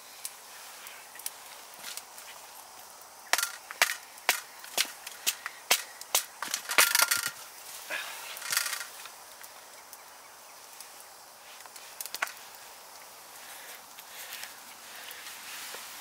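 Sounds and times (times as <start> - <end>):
knife cracking dry wood: 3.2 - 7.4.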